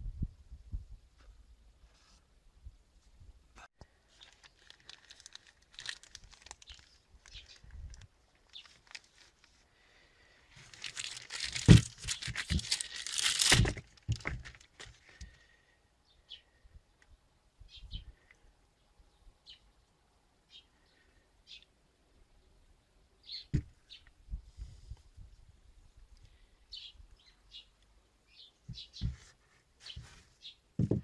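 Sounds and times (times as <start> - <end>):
plastic bag crinkling and rustling: 3.9 - 9.6, 10.6 - 15.2
dull knocks: 30.8 - 31.0.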